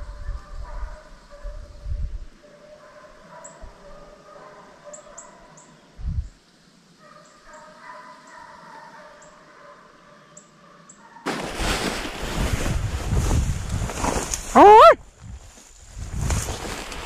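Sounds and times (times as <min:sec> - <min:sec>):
distant hounds baying: 0:02.4 - 0:05.8, 0:07.0 - 0:11.3.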